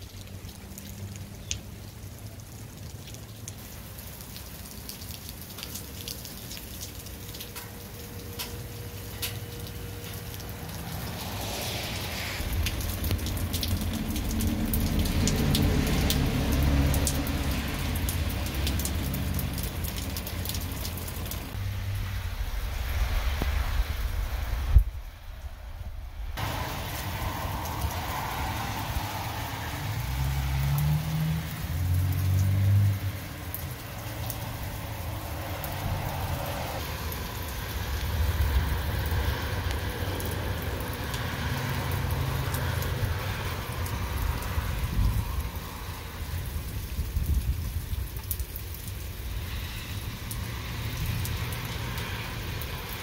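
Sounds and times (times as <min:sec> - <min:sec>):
rain pattering and dripping: 0:00.0 - 0:53.0
low rumble: 0:21.6 - 0:28.1.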